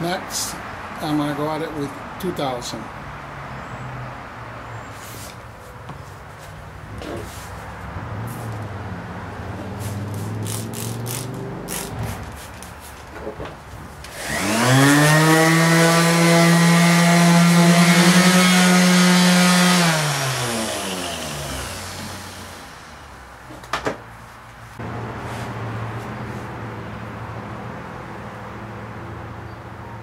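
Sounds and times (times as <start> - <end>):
orbital sander motor humming: 14.1 - 23.0.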